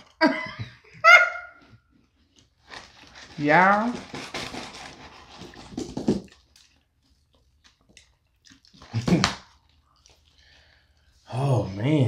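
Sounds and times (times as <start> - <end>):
paper carton rustling: 2.6 - 6.3.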